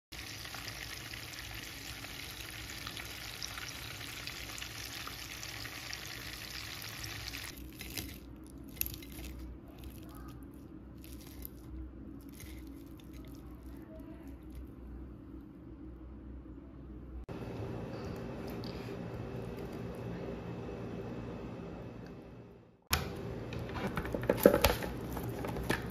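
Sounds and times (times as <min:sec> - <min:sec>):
fish sizzling in frying pan: 0:00.2 - 0:07.5.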